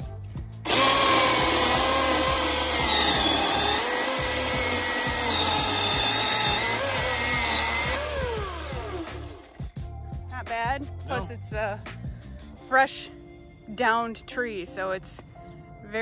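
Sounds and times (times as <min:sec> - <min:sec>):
electric chainsaw cutting wood: 0:00.7 - 0:09.5.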